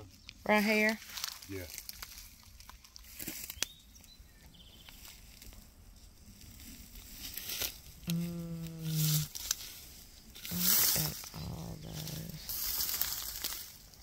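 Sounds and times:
rustling and snapping of leaves: 0.1 - 4.2, 4.8 - 14.0
person humming low note: 8.0 - 9.3.

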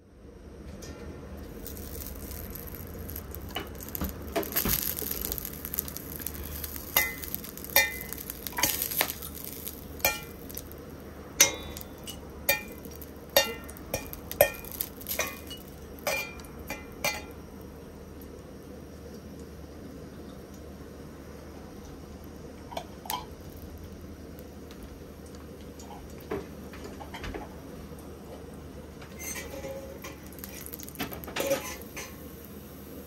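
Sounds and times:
oil sizzling in a wok: 1.4 - 33.0
metal ladle clinking against wok: 11.4 - 17.4.

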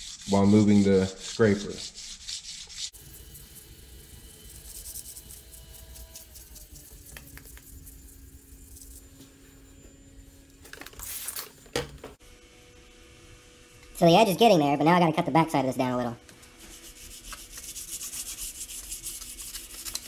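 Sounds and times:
blade scraping on wet sandpaper: 0.0 - 3.0, 4.4 - 9.1, 16.5 - 20.0.

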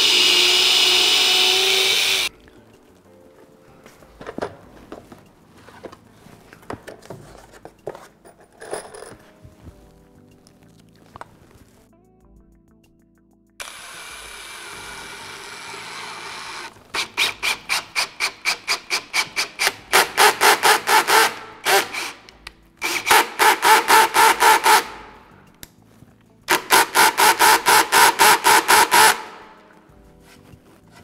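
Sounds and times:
cordless drill driving screws into wood: 0.0 - 2.3, 13.6 - 25.1, 26.5 - 29.4.

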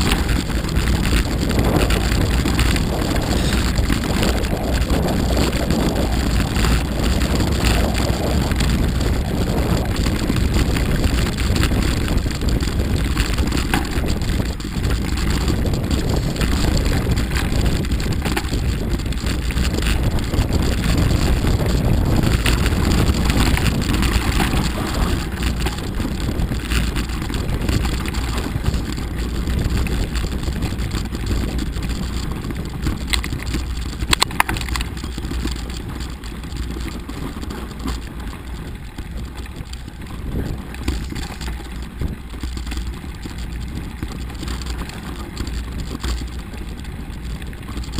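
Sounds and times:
bike tyres rolling: 0.0 - 47.9
knocks and rattles from bumps: 0.0 - 47.9
wind rush on microphone: 0.0 - 47.9.

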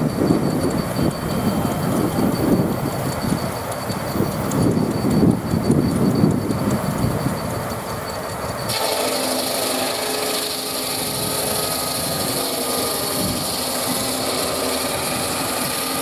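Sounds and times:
circular saw whining: 0.0 - 16.0
saw cutting through log: 8.7 - 16.0.

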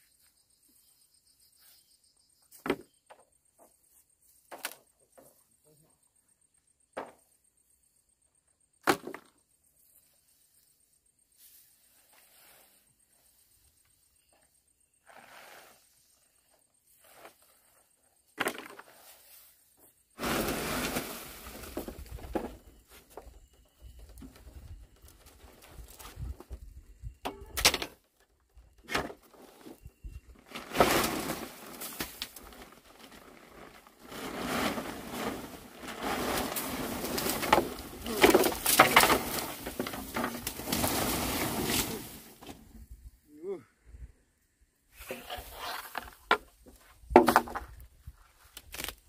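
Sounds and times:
straw thatch rustling and crackling: 29.3 - 42.8, 48.2 - 49.0
wooden poles knocking: 47.1 - 47.8.

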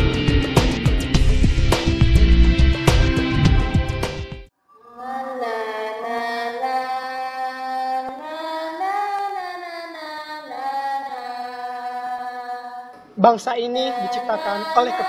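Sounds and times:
women singing together: 4.9 - 13.1, 13.9 - 15.0.

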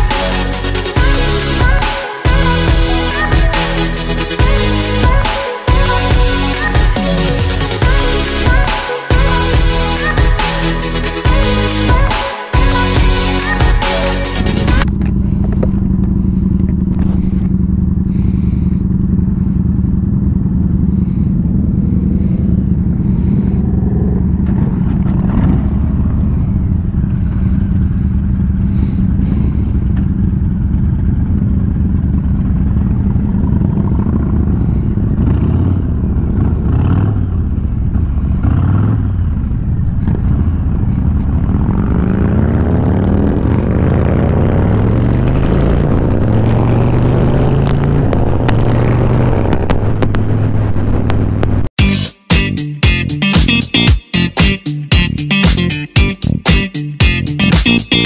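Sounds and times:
motorcycle engine idling and revving: 0.0 - 51.8
other motorcycles moving off: 14.5 - 51.8.

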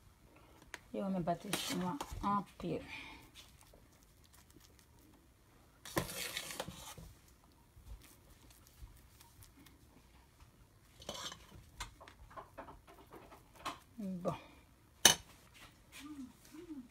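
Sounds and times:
spoon scraping foil tray: 1.4 - 2.2, 5.8 - 7.1, 10.9 - 12.4
spoon squishing mashed potato: 1.4 - 16.5.

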